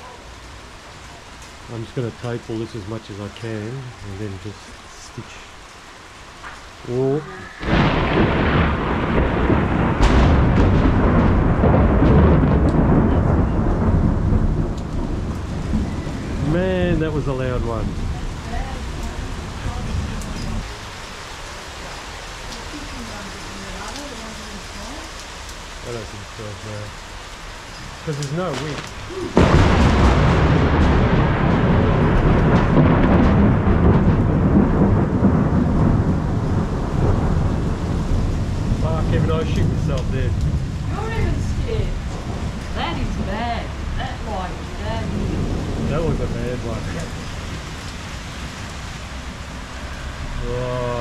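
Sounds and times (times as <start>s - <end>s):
rain falling: 0.0s - 51.0s
thunder rumbling: 6.2s - 51.0s
sharp thunder crack: 7.5s - 20.8s, 27.9s - 51.0s.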